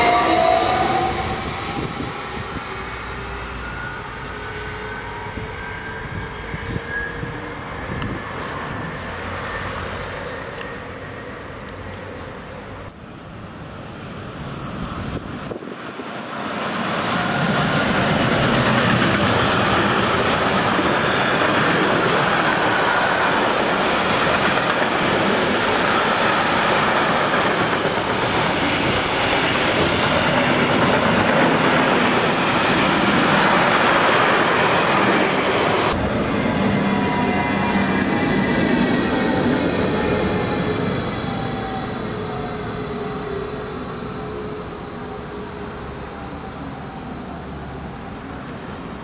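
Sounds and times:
high whistling sound: 0.0s - 7.9s
freight train rumbling and clattering: 15.0s - 41.5s.

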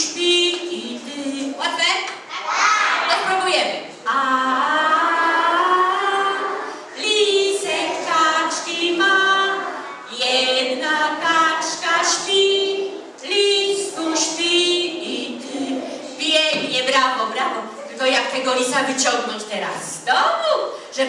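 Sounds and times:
children and woman singing lullaby: 0.0s - 1.6s, 4.0s - 16.3s.

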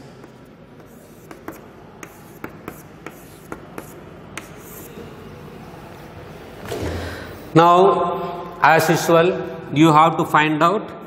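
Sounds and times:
chalk tapping on board: 0.0s - 5.0s
chalk scratching on blackboard: 0.0s - 6.5s.

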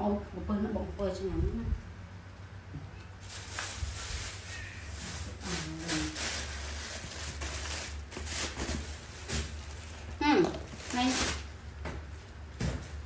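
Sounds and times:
plastic bag rustling: 3.0s - 13.0s.

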